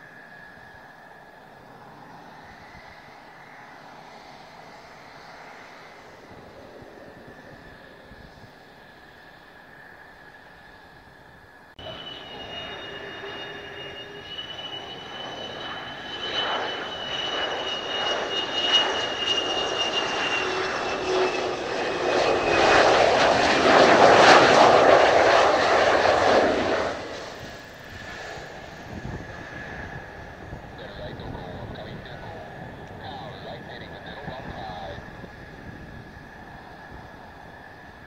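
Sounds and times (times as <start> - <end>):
jet engine whine: 0.0 - 38.0
rushing jet noise: 11.8 - 37.7.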